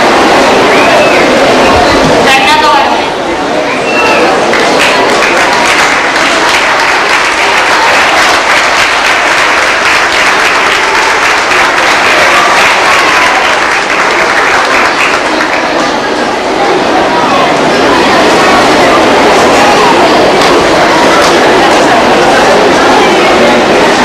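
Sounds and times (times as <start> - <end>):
audience applauding: 4.1 - 16.3.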